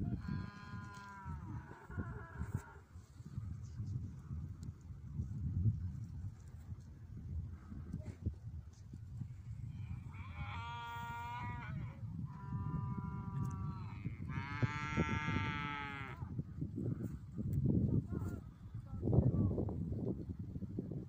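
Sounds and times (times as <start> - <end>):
cattle mooing: 10.1 - 16.2.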